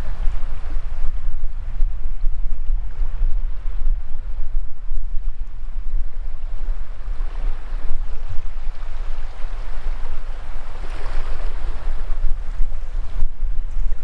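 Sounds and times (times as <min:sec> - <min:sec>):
wind rumble on microphone: 0:00.0 - 0:14.0
small waves washing over sand: 0:05.2 - 0:14.0.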